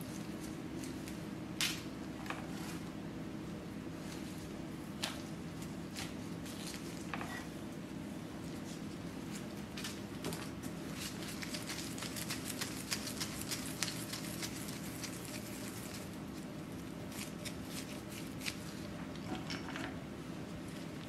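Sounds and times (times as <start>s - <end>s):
low steady hum: 0.0s - 21.0s
disposable gloves crinkling: 10.6s - 19.0s.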